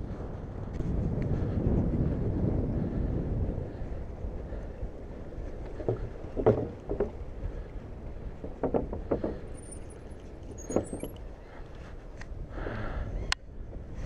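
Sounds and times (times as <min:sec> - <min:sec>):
wind buffeting microphone: 0:00.0 - 0:14.0
bike rattling over wooden boards: 0:05.0 - 0:11.3.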